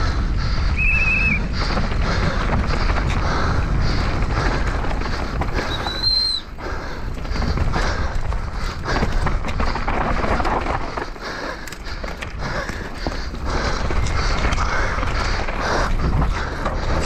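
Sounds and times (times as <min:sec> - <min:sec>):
bike tyres skidding on dirt: 0:00.0 - 0:17.0
wind buffeting microphone: 0:00.0 - 0:17.0.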